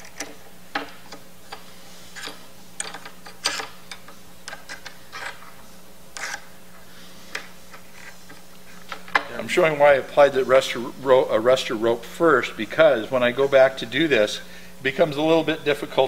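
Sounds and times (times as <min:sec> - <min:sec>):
wrench clicks and scrapes on metal: 0:02.2 - 0:05.4, 0:06.2 - 0:06.5.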